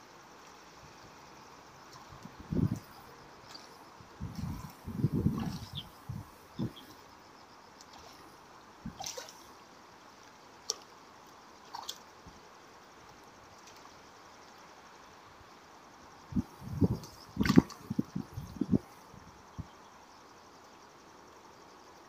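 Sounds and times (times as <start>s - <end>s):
faint river flow: 0.0s - 22.0s
fish splashing at water surface: 3.5s - 6.9s, 7.8s - 8.3s, 8.9s - 9.5s, 11.6s - 12.0s, 16.8s - 18.1s.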